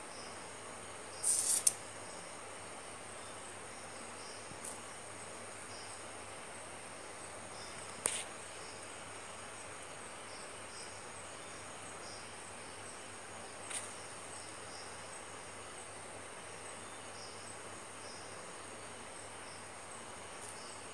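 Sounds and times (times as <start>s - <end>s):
faint hiss and low hum: 0.0s - 20.9s
insects chirping: 0.0s - 20.9s.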